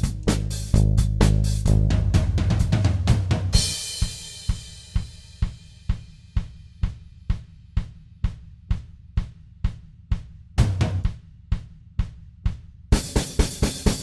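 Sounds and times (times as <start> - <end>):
band music: 0.0 - 3.7
steady drum beat: 0.0 - 14.0
cymbal crash: 3.5 - 5.5.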